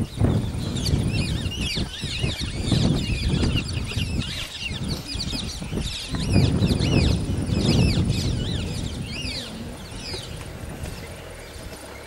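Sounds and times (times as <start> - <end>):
birds chirping and twittering: 0.0 - 12.0
low rumble: 0.0 - 12.0.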